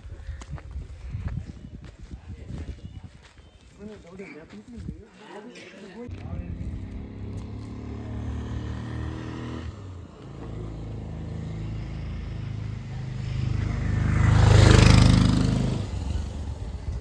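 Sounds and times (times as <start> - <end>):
vehicle passing close by: 6.1 - 17.0.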